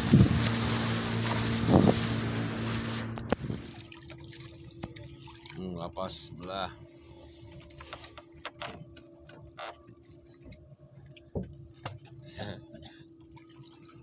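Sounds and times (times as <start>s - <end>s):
boat engine idling: 0.0s - 14.0s.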